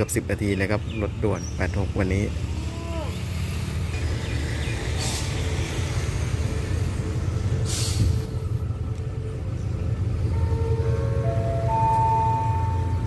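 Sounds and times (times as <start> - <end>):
diesel locomotive rumble: 0.0 - 13.0
short hisses: 7.7 - 8.3.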